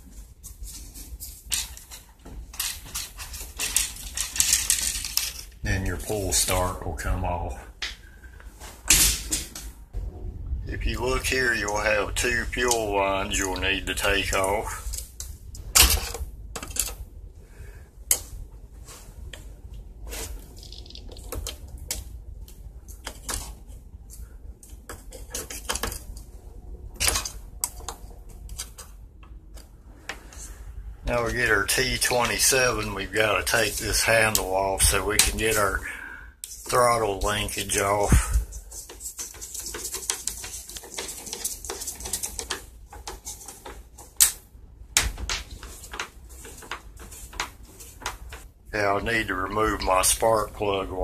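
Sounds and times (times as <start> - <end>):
screwdriver clicking and scraping metal: 1.3 - 5.6, 11.3 - 17.0, 20.1 - 26.3, 27.0 - 30.5, 36.4 - 44.4.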